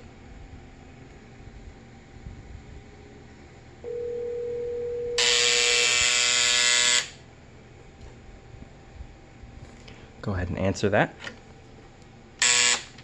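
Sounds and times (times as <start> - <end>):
steady single tone: 3.8 - 7.1
telephone buzzer: 3.8 - 7.2, 12.4 - 13.0.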